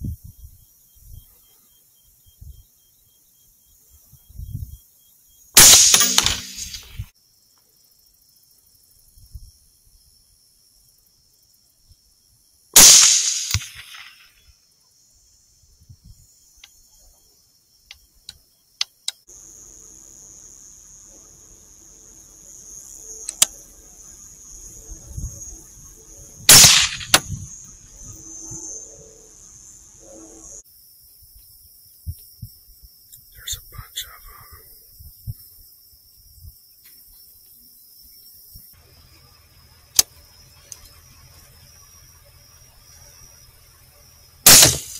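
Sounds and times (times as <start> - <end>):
rifle shots: 5.6 - 7.0, 12.8 - 14.2, 26.5 - 27.4, 44.5 - 44.9.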